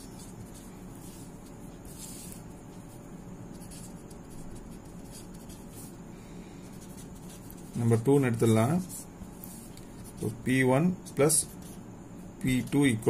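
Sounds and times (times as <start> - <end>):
pen scratching on paper: 0.0 - 6.0, 6.7 - 8.0, 8.7 - 11.8.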